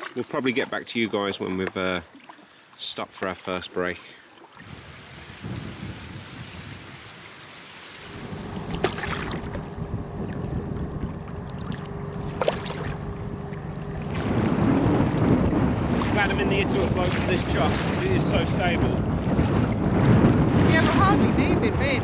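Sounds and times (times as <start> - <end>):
water splashing around kayak: 0.0 - 22.0
sharp splashes: 4.2 - 10.4, 11.5 - 21.3
wind on microphone: 4.6 - 7.3, 8.0 - 22.0
steady low hum: 8.2 - 17.0.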